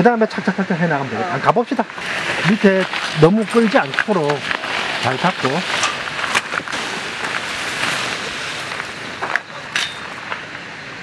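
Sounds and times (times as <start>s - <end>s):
mesh screen rustling: 2.0s - 10.5s.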